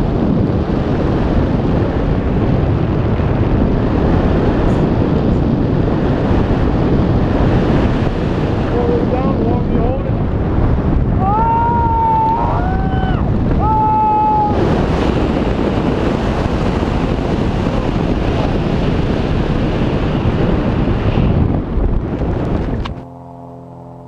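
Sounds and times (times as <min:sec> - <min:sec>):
wind rushing across microphone: 0:00.0 - 0:23.1
person whooping: 0:11.2 - 0:14.6.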